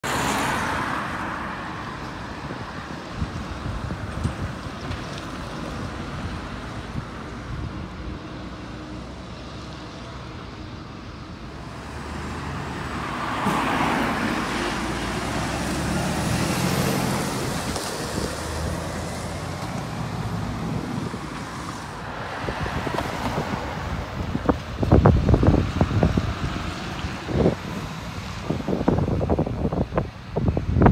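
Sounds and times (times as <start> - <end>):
refuse truck driving past: 7.9 - 24.2.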